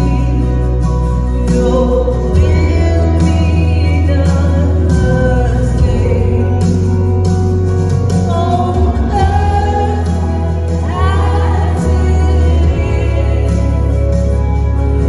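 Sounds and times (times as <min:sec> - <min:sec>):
band with heavy bass line: 0:00.0 - 0:15.0
singers singing a melody: 0:08.3 - 0:14.7.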